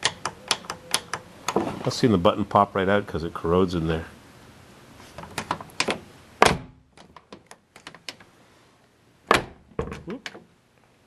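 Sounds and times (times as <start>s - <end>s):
latch and button clicks: 0.0s - 1.6s.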